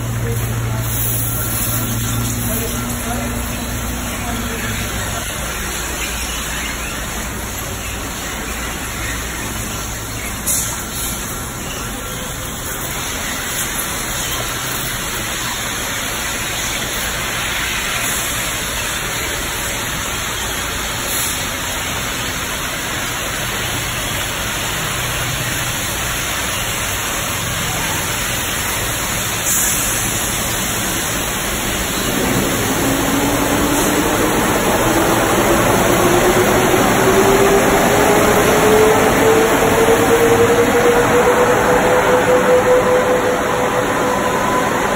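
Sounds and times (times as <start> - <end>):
water spraying onto car: 0.0 - 38.8
machine whine rising in pitch: 30.5 - 44.9.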